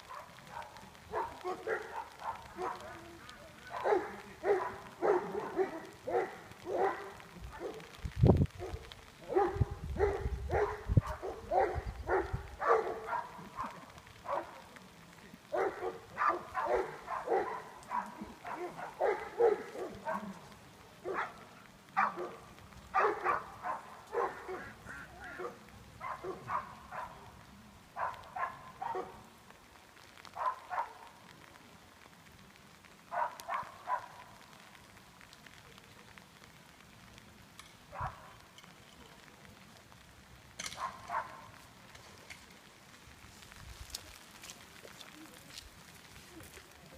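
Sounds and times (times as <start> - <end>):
dog barking: 0.0 - 7.9, 8.6 - 14.6, 15.5 - 20.4, 21.0 - 27.3, 28.0 - 29.2, 30.3 - 31.1, 33.1 - 34.3, 37.9 - 38.3, 40.8 - 41.6.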